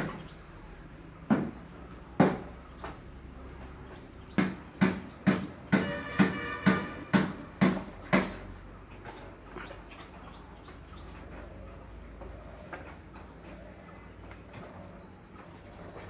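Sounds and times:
sharp knocks: 1.2 - 3.0, 4.3 - 8.6.

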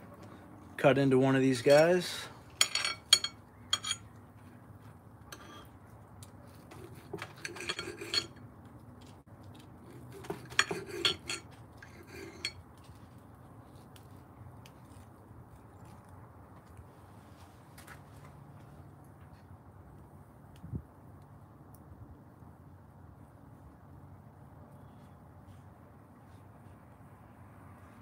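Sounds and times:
knife and fork scraping a plate: 2.6 - 4.1, 5.3 - 5.8, 6.5 - 8.4, 9.8 - 12.6.

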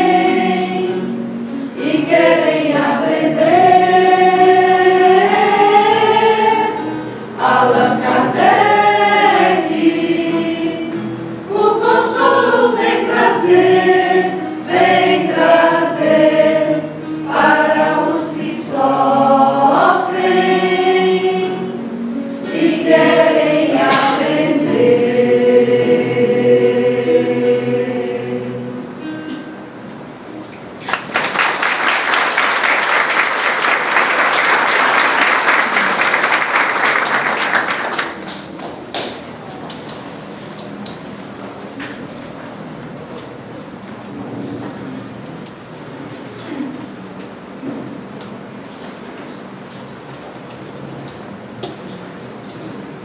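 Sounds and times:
mixed choir singing in harmony: 0.0 - 29.4.

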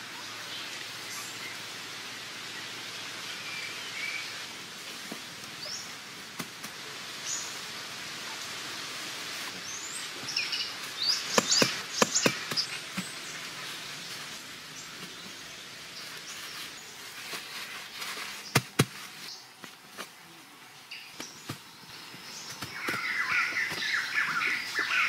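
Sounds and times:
forest hiss: 0.0 - 25.0.

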